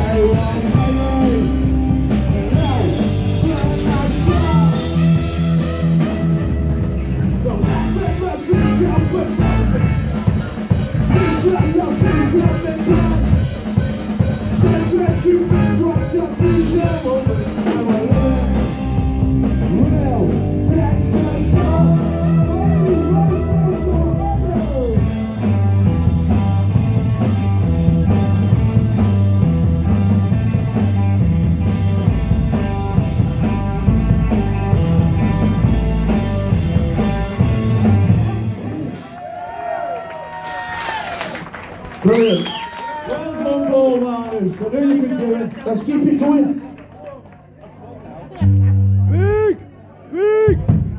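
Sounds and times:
person singing: 0.0 - 5.5, 14.4 - 19.0, 19.6 - 25.2
live band playing: 0.0 - 39.2, 48.3 - 49.7, 50.5 - 50.9.

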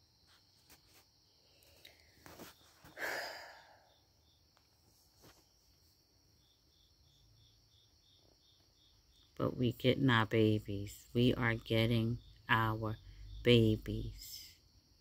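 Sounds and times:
cricket chirping: 0.0 - 15.0
breathy rush: 2.9 - 3.9.

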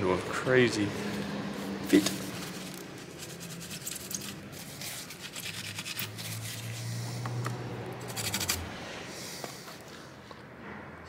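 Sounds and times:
paper towel rubbing circuit board: 1.5 - 7.0, 8.0 - 8.6.

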